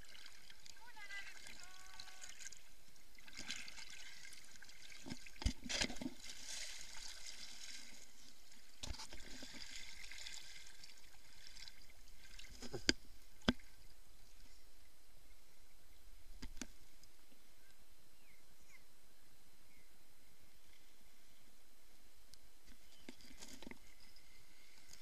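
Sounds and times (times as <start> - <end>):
sea water sloshing: 0.0 - 13.9
knocks and splashes: 3.2 - 7.9.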